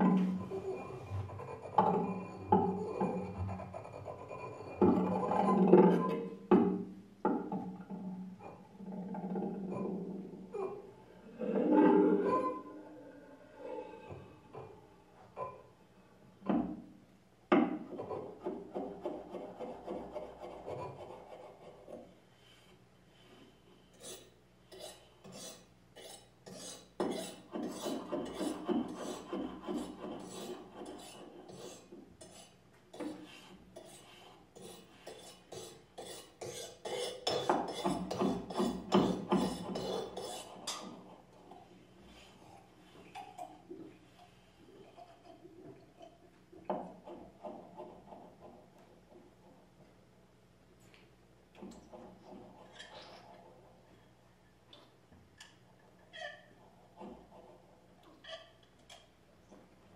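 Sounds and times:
blade rasping across block: 24.0s - 33.2s.

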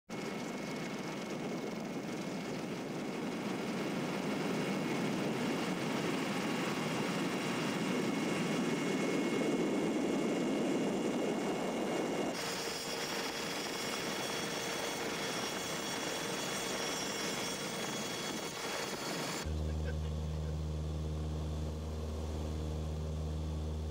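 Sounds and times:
aircraft engine rushing: 0.2s - 23.9s
steady hum: 18.5s - 23.9s.

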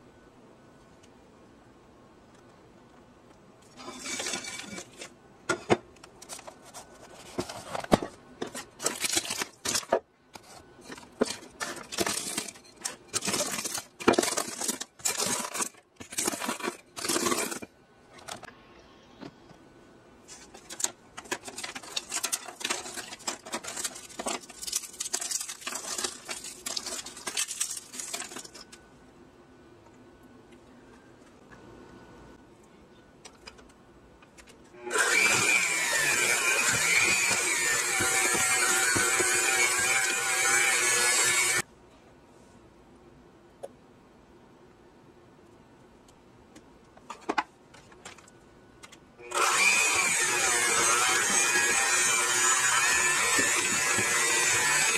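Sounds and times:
pastry crunching under rolling pin: 11.1s - 17.7s.

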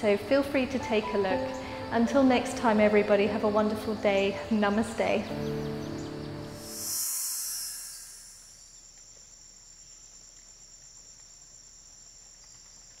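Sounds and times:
high-pitched insect chorus: 5.3s - 13.0s
high hiss: 6.4s - 9.9s.

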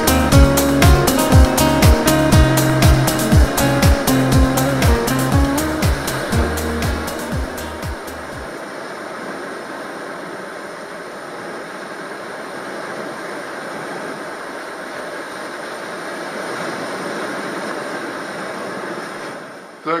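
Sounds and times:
surf: 0.0s - 8.6s
wind: 6.0s - 20.0s.

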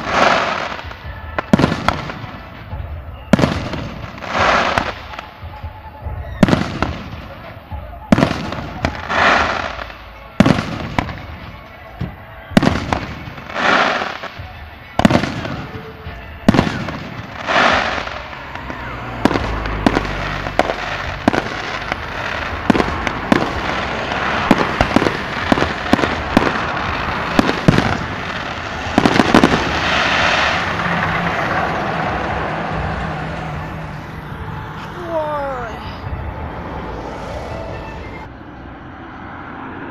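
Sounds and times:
fireworks crackling: 0.0s - 36.2s
firework shells bursting: 19.3s - 32.4s.

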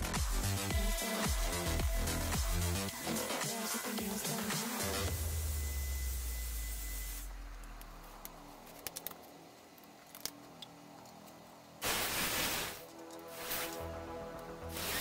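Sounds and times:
heat gun blowing: 11.8s - 13.9s, 14.6s - 15.0s.

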